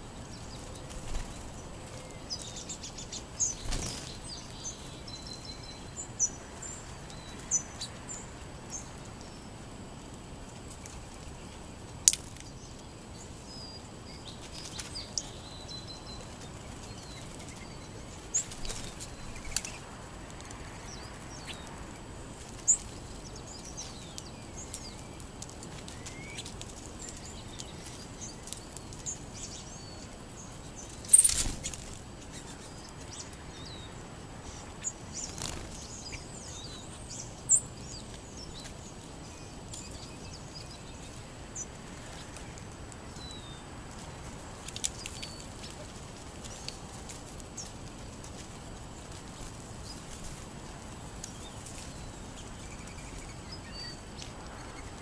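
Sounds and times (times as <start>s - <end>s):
small birds chirping: 0.0s - 55.0s
wing flutters: 2.5s - 4.4s, 30.8s - 32.7s, 35.0s - 36.2s.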